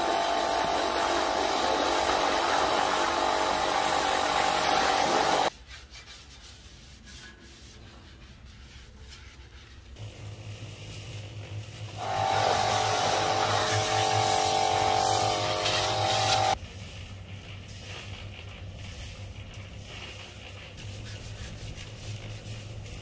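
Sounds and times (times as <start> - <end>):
pressure washer spraying: 0.0 - 5.5, 10.0 - 16.6.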